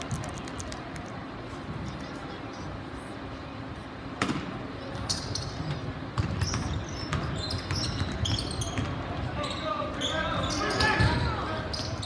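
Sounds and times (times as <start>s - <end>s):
basketball bouncing on gym floor: 6.1s - 9.2s.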